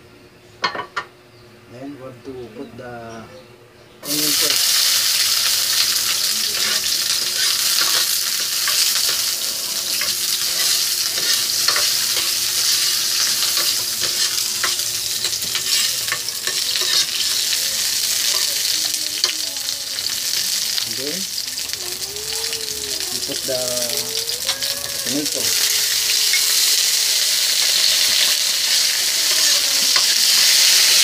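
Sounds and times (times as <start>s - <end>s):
onion sizzling in oil: 4.0s - 31.0s.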